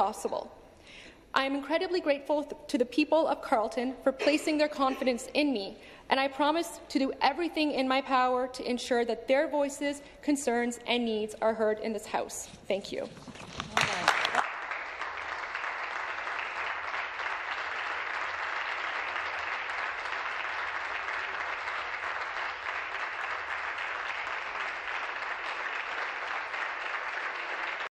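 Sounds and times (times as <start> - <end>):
people applauding: 13.2 - 27.9.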